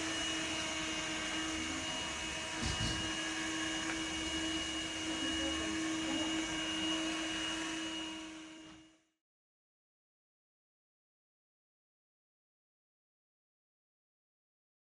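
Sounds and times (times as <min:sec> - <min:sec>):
suction fan humming with whine: 0:00.0 - 0:09.1.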